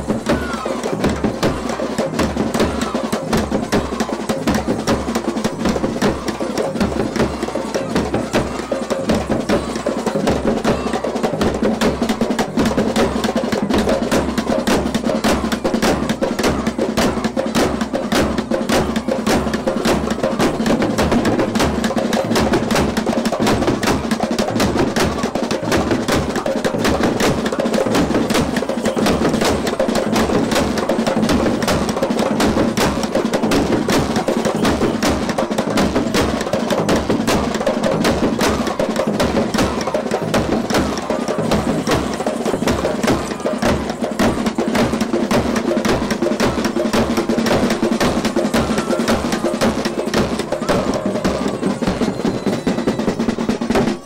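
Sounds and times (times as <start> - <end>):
drums beaten with sticks: 0.0 - 54.0
hand cymbals clashing: 37.9 - 45.2.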